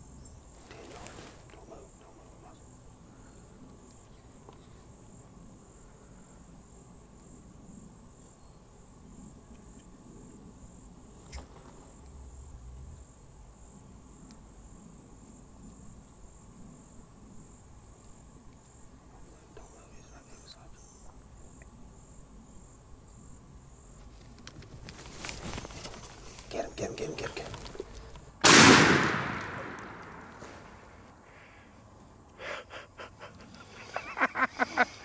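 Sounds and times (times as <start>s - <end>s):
high-pitched insect trill: 1.7s - 27.8s.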